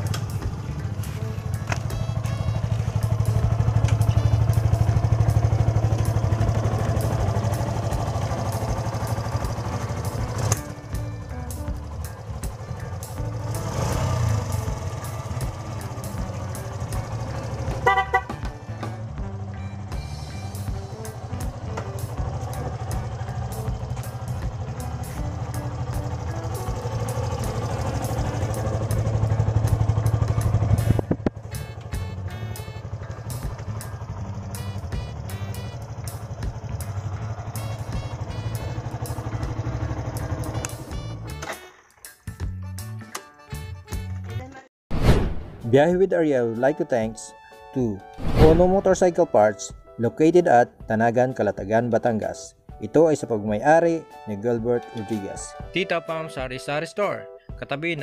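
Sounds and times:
motorcycle engine idling: 0:00.0 - 0:42.0.

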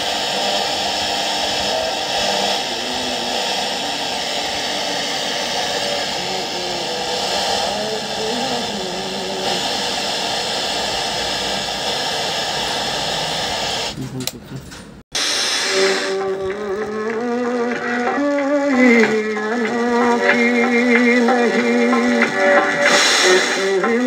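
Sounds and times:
radio static hiss: 0:00.0 - 0:14.5, 0:15.1 - 0:24.0
faint voice on radio: 0:13.9 - 0:14.7.

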